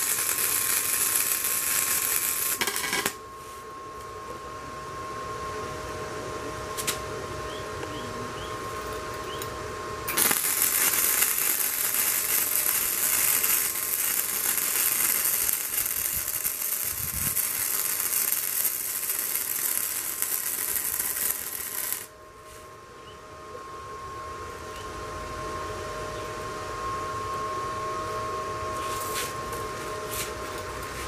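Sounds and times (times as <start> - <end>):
welding arc: 0.0 - 3.2, 10.1 - 22.1.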